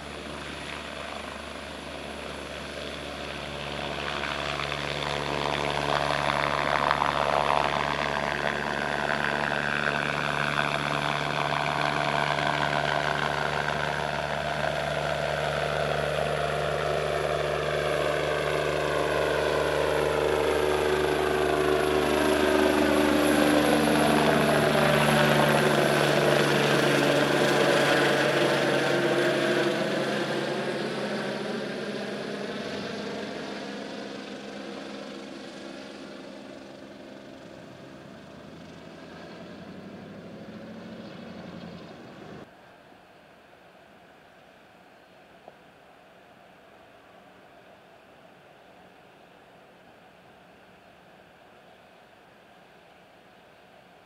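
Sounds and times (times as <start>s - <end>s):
helicopter taking off: 0.0s - 42.5s.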